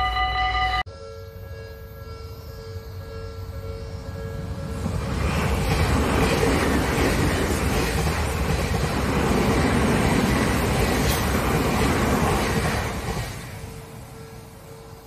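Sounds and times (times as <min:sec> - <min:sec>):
train wheels rushing on rail: 0:03.8 - 0:15.0.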